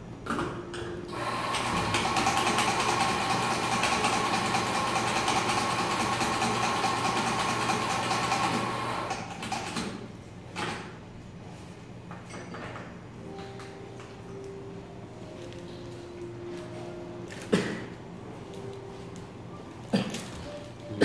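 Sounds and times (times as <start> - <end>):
espresso machine pump humming: 1.1 - 9.3.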